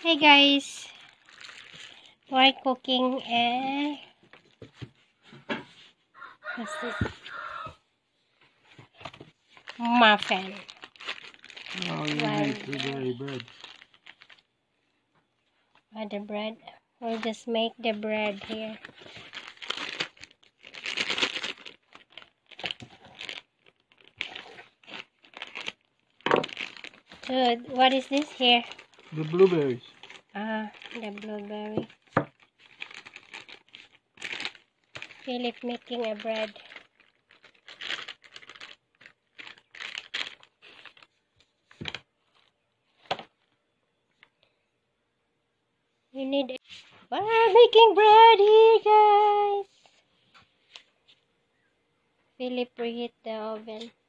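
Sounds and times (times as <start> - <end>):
bag crinkling: 0.3 - 2.2, 9.0 - 14.5, 17.0 - 42.6.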